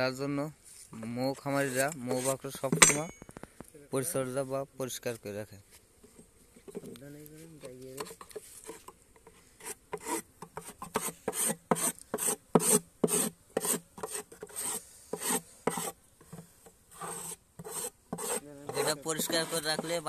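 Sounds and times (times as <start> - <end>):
metal blade scraping wood: 1.4 - 3.2, 9.6 - 16.4, 17.0 - 20.0.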